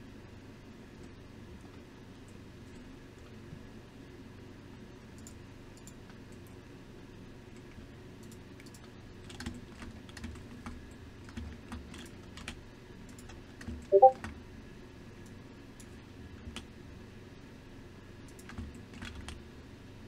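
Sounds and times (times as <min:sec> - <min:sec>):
computer keyboard tapping: 0:08.6 - 0:14.2, 0:18.3 - 0:19.4.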